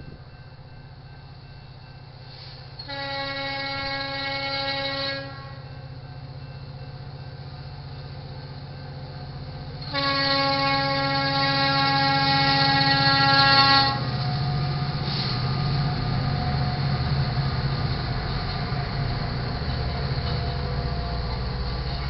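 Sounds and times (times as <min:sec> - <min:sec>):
locomotive air horn blasts: 0:02.4 - 0:05.7, 0:09.8 - 0:14.1.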